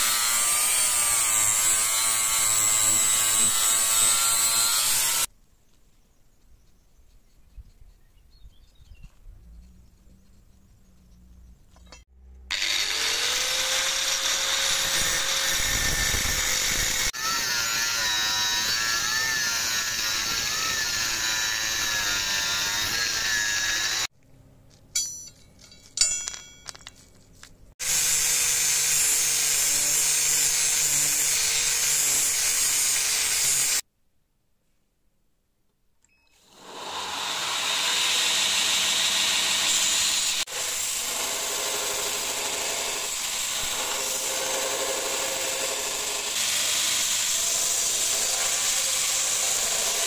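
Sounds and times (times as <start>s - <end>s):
angle grinder cutting steel: 0.0s - 5.3s, 11.8s - 24.1s, 27.8s - 33.8s, 36.4s - 50.0s
metal clinks: 24.8s - 27.3s.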